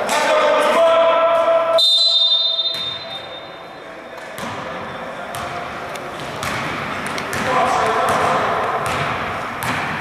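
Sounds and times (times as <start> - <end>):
basketball bouncing on gym floor: 4.4 - 10.0.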